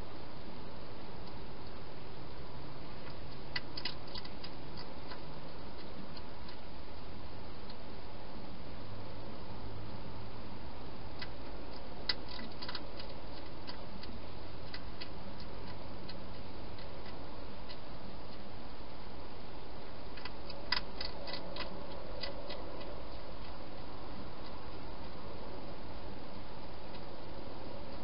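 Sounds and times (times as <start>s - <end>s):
steady hiss: 0.0s - 28.0s
hedgehog crunching dry food: 3.0s - 7.8s, 11.1s - 28.0s.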